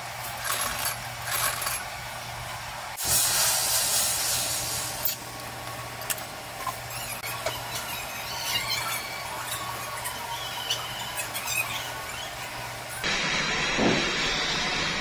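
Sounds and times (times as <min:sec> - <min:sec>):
gas torch flame hissing: 0:03.0 - 0:05.2, 0:13.0 - 0:15.0.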